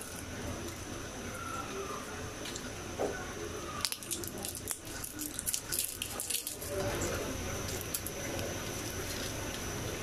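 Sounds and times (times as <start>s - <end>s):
seeds clicking in frying pan: 3.8s - 6.7s.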